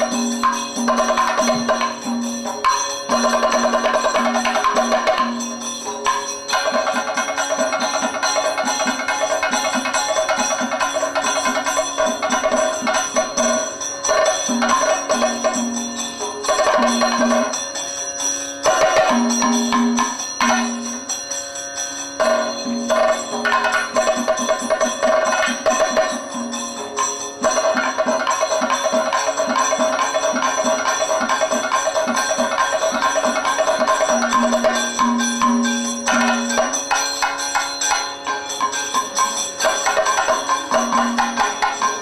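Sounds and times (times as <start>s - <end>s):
drums playing dense rhythm: 0.0s - 21.3s, 22.0s - 42.0s.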